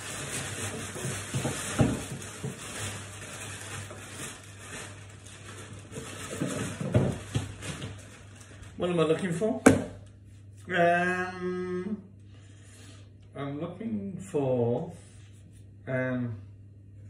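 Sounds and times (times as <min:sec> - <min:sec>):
kitchen items knocking and clattering: 0:00.0 - 0:04.9, 0:05.5 - 0:08.1
rummaging rustling: 0:00.0 - 0:09.6.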